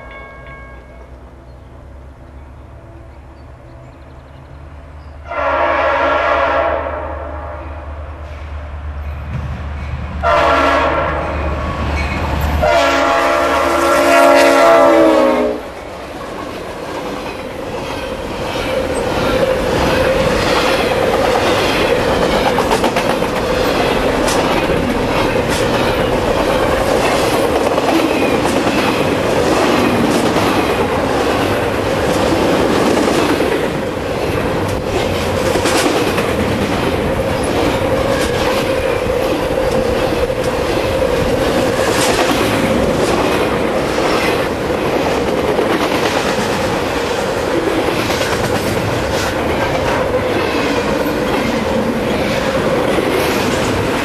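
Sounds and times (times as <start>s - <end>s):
locomotive air horn blasts: 5.2s - 7.6s, 10.2s - 11.4s, 12.6s - 15.8s
train wheels clattering over rails: 15.9s - 54.0s.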